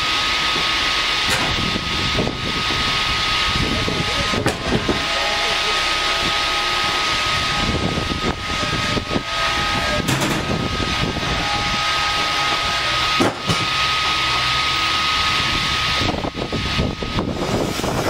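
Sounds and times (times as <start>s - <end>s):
band sawmill whining: 0.0s - 18.0s.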